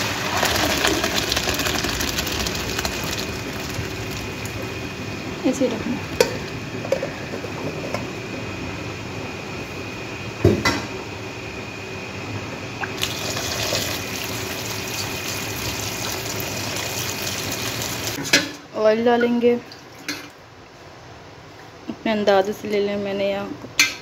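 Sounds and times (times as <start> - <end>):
tap water running: 0.0 - 4.8, 12.8 - 18.2
hot water draining through colander: 0.0 - 5.0, 12.8 - 18.2.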